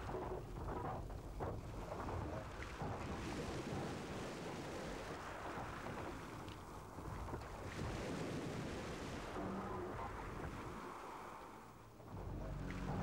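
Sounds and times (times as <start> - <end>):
wind: 0.0 - 13.0
sea waves rushing: 7.6 - 13.0
low rumble: 11.6 - 13.0.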